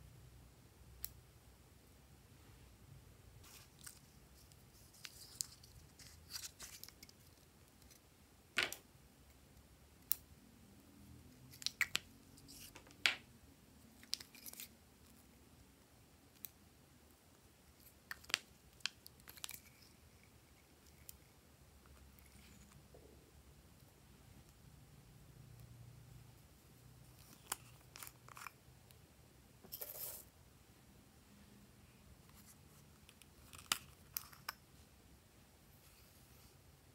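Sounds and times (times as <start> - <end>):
small tubes and tools handled: 3.4 - 8.8, 11.4 - 13.2, 14.0 - 15.3, 17.7 - 22.8, 27.0 - 28.6, 32.2 - 34.7.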